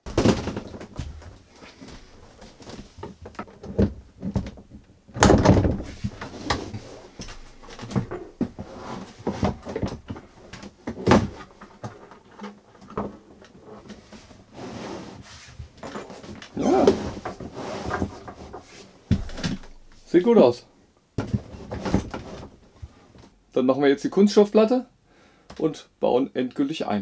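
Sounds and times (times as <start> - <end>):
plastic parts knocking and rattling: 0.0 - 1.4, 2.3 - 14.0, 15.8 - 20.1, 21.2 - 22.6.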